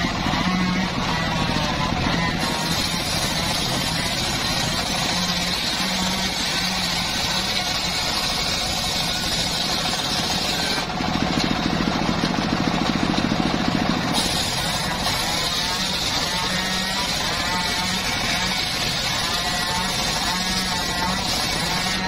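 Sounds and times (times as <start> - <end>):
engine hum: 0.0 - 22.0
circular saw hissing: 14.1 - 22.0.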